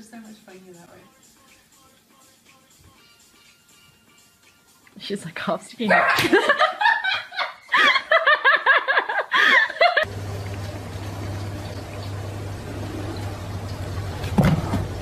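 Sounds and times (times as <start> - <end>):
woman giggling: 5.8 - 10.1.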